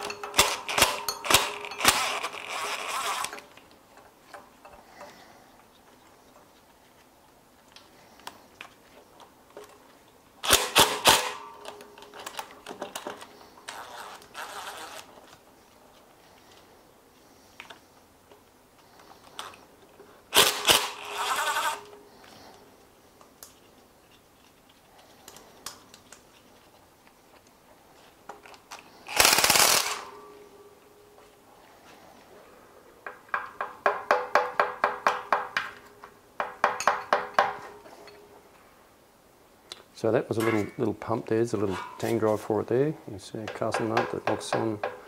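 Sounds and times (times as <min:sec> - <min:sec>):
power tool rattling bursts: 0:00.0 - 0:03.5, 0:10.4 - 0:11.5, 0:20.3 - 0:21.9, 0:29.0 - 0:30.2
metallic clicks of nuts and tools: 0:00.0 - 0:06.5, 0:10.4 - 0:15.1.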